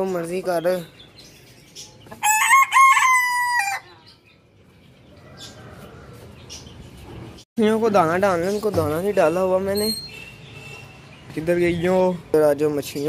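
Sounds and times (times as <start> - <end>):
rooster crowing: 2.2 - 3.9.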